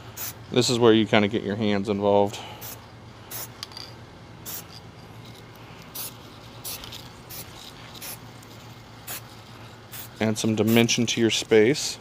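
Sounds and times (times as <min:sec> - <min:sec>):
low steady hum: 0:00.0 - 0:12.0
spray can hissing: 0:04.4 - 0:04.7, 0:05.9 - 0:08.2, 0:09.1 - 0:09.3, 0:09.9 - 0:10.9.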